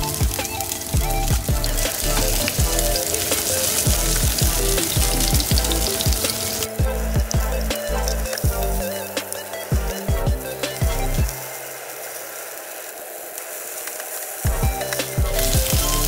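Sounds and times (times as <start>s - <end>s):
oil sizzling in frying pan: 0.0s - 6.8s, 11.3s - 16.0s
background music with beat: 0.0s - 12.1s, 14.4s - 16.0s.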